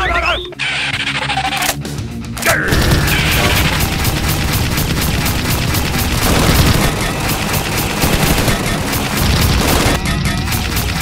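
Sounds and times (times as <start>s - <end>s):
automatic gunfire: 2.7s - 10.0s
heavy low rumble: 2.7s - 10.0s.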